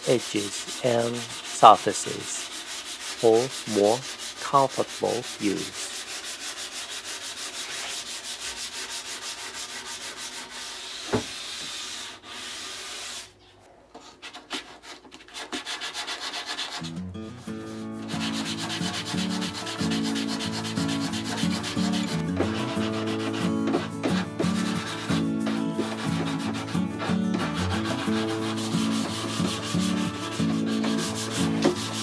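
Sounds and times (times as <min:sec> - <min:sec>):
sandpaper rubbing on wood: 0:00.0 - 0:32.0
soft background music: 0:16.8 - 0:32.0.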